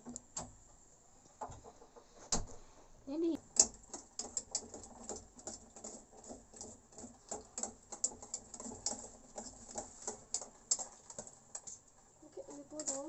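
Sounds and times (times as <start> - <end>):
spoon stirring in a pan: 3.4 - 13.0.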